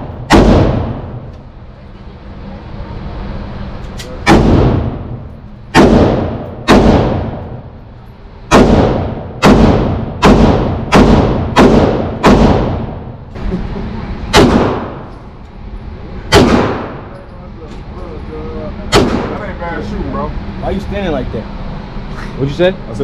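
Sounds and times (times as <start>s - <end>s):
gunshots with ringing echo: 0.0s - 1.2s, 4.2s - 7.6s, 8.5s - 13.2s, 14.3s - 15.1s, 16.3s - 17.1s, 18.9s - 19.4s
faint distant gunshot: 0.3s - 1.2s, 4.3s - 5.1s, 5.7s - 7.5s, 8.5s - 13.0s, 14.3s - 15.0s, 16.3s - 17.1s, 18.9s - 19.4s.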